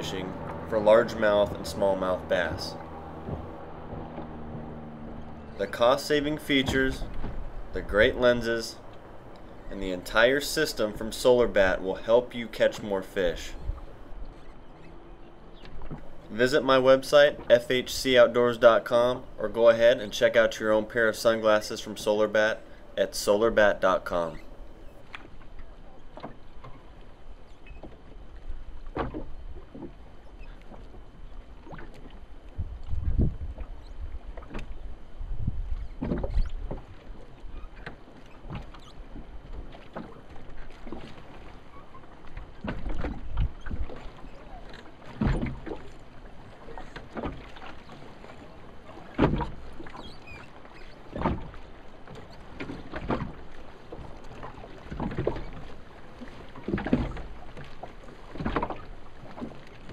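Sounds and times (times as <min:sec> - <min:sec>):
low rumble: 0:00.0 - 0:16.6
knocks and bumps in a boat: 0:00.0 - 0:59.9.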